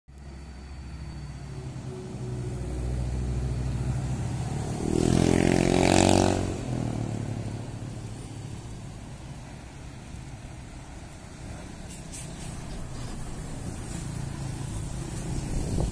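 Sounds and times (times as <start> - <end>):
cars driving by: 0.2 - 15.9
motorcycle driving by: 1.7 - 8.6.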